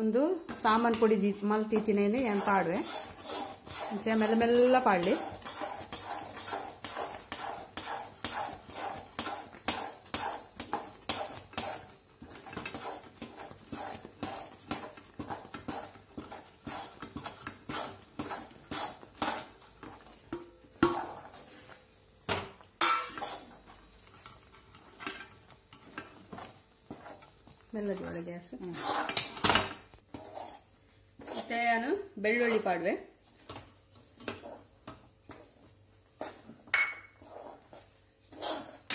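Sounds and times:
steel spoon scraping a pan: 0:01.7 - 0:21.8, 0:22.8 - 0:38.9
metal clanks against pan: 0:22.8 - 0:23.2.

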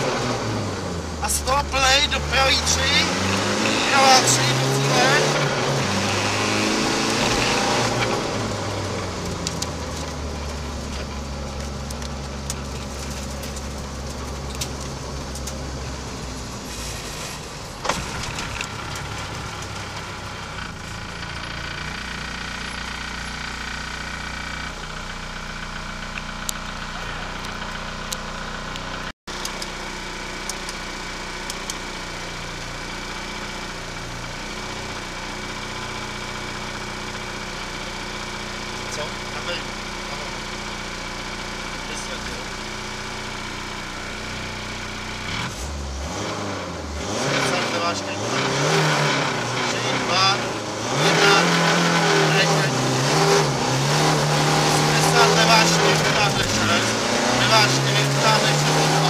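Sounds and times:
car engine idling: 0:00.0 - 0:59.0.

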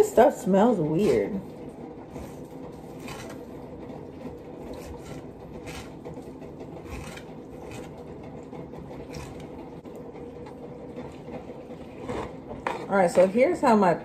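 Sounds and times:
knife scraping food: 0:02.1 - 0:03.6, 0:04.6 - 0:08.3, 0:09.0 - 0:09.6, 0:12.0 - 0:13.0.

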